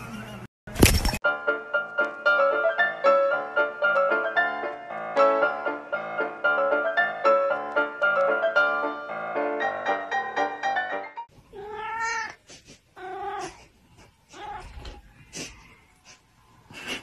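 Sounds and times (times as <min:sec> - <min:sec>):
piano music: 0:01.2 - 0:11.3
cat meowing: 0:11.5 - 0:12.4, 0:13.0 - 0:13.7, 0:14.3 - 0:15.1.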